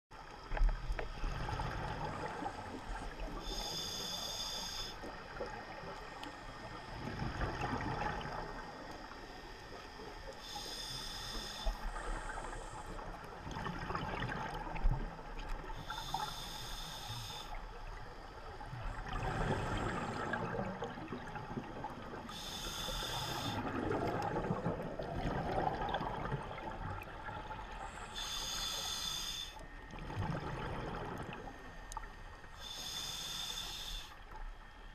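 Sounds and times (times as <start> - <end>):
hissing regulator inhalation: 3.4 - 5.2, 10.4 - 13.0, 15.7 - 17.6, 22.2 - 23.8, 28.0 - 29.6, 32.6 - 34.2
gurgling rush of exhaled bubbles: 13.4 - 15.2, 23.6 - 27.4, 30.0 - 31.5.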